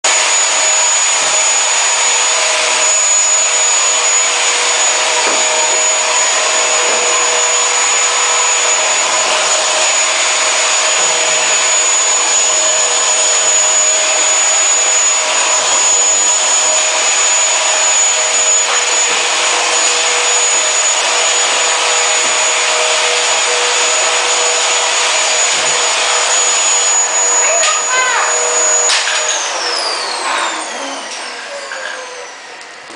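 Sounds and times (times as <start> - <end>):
vacuum cleaner whining: 0.0 - 32.9.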